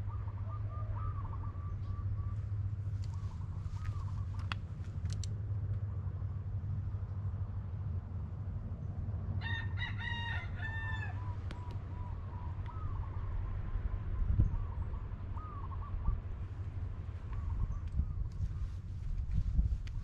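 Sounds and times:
short bird calls: 0.0 - 4.5
steady low rumble: 0.0 - 20.0
rooster crowing: 9.4 - 11.4.

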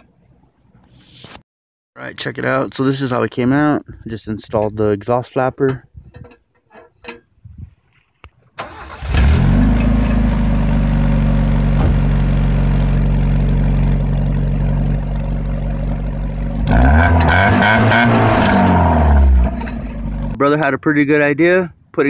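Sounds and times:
car engine cranking: 8.6 - 20.4
car engine idling and revving: 8.6 - 20.4.

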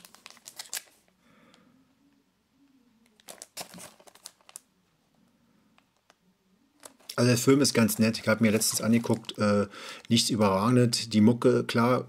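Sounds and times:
plastic case rustling and crinkling: 0.0 - 1.0, 3.1 - 4.6, 6.8 - 9.5.

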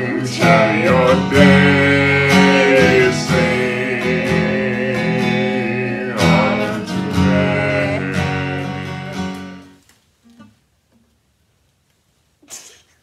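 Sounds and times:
acoustic guitar strumming: 0.0 - 10.6.

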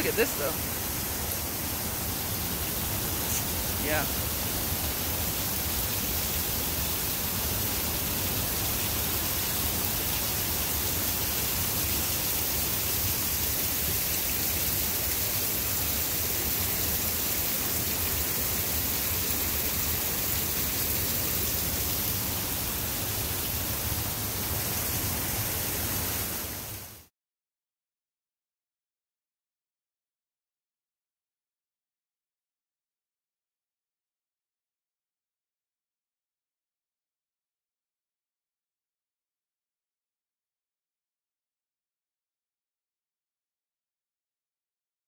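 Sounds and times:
waterfall rushing: 0.0 - 26.8.

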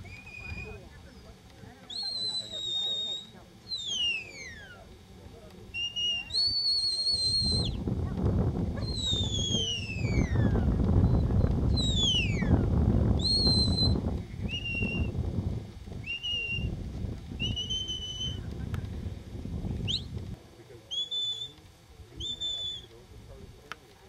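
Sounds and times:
shepherd's whistle commands: 1.9 - 4.8, 8.8 - 10.5, 13.2 - 15.1, 17.4 - 18.4, 20.9 - 21.6, 22.2 - 22.9
low rumbling noise: 3.6 - 23.7.

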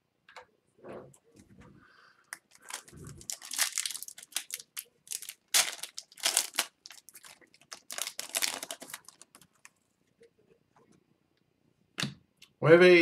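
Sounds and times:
foil wrapper tearing and crinkling: 2.5 - 9.7.

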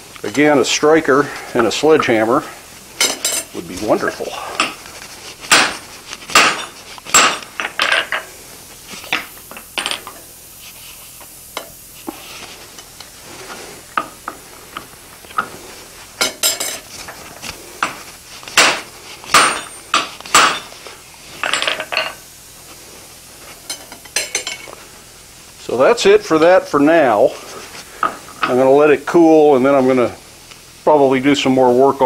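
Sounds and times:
steel tools clinking on anvil: 3.0 - 3.6, 16.2 - 16.9, 19.3 - 20.7, 23.7 - 24.7.

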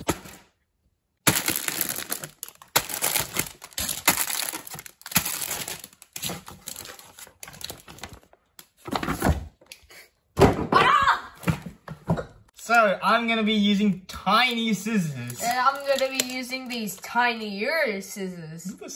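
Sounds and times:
plastic bags crinkling: 1.2 - 8.4, 15.2 - 17.2.

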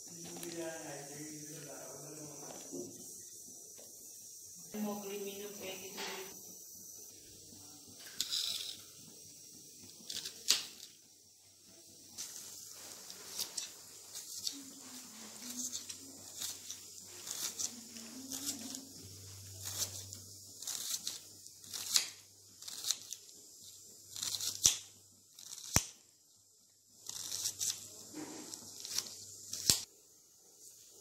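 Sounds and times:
knife chopping onion: 17.2 - 23.2.

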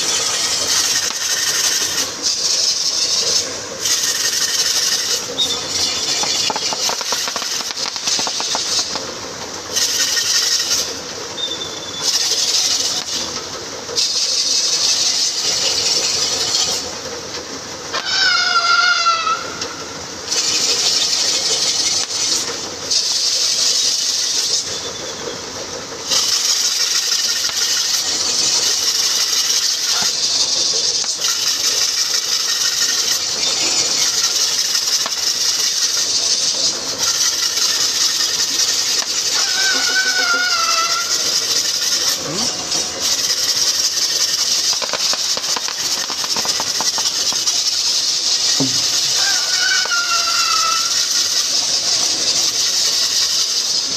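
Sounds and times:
bulls galloping: 0.0 - 9.3, 26.0 - 53.9
high hissing rattle: 0.0 - 53.9.

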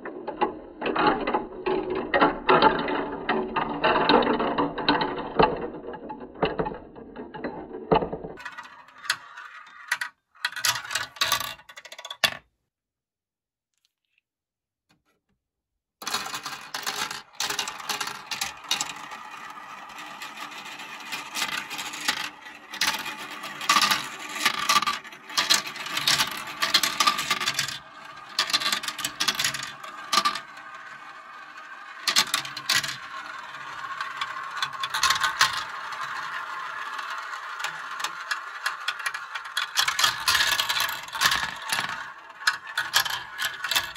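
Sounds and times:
plastic balls rattling in marble run: 0.0 - 12.4, 16.0 - 43.9.

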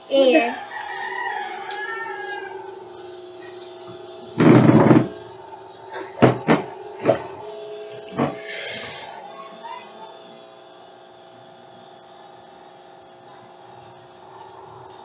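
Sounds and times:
faint steady hum: 0.0 - 15.0
sharp knocks: 6.2 - 7.2.

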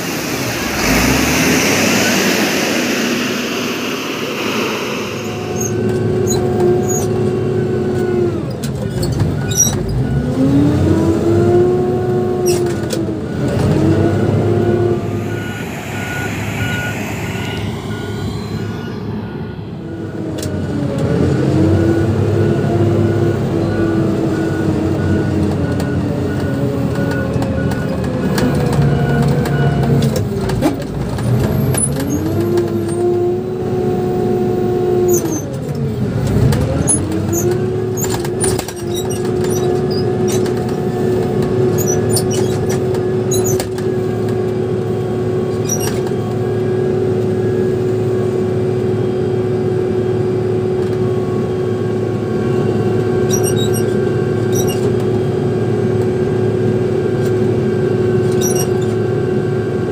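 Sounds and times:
steady whine: 0.0 - 7.2, 13.7 - 21.4
diesel engine running: 0.0 - 8.0, 12.6 - 21.6.

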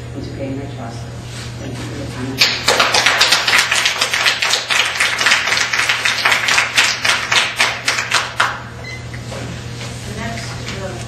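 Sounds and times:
audience applause: 2.4 - 8.6.

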